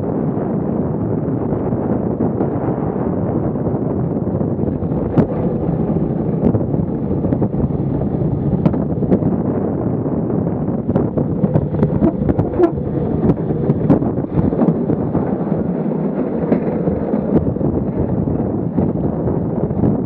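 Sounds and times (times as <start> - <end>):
wind buffeting microphone: 0.0 - 20.0
cart rattling and knocking: 10.8 - 20.0
cart wheels rolling on concrete: 10.8 - 20.0.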